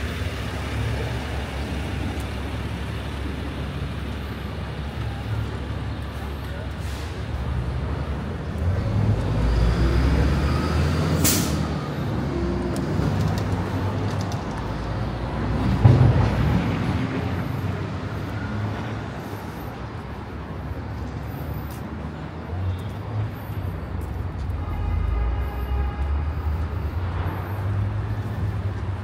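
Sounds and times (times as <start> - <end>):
heavy vehicle engine rumbling: 0.0 - 29.0
street traffic: 0.0 - 29.0.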